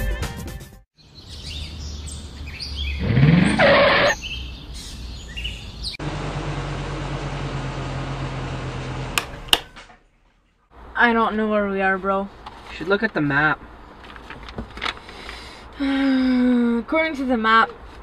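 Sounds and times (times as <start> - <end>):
birds chirping: 1.0 - 6.0, 13.5 - 14.3
car engine idling: 6.0 - 9.6.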